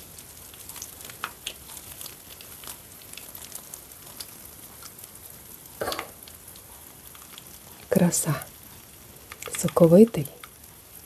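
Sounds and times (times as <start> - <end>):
oil sizzling in a pan: 0.0 - 11.0
fried crust crackling when torn: 0.1 - 7.9.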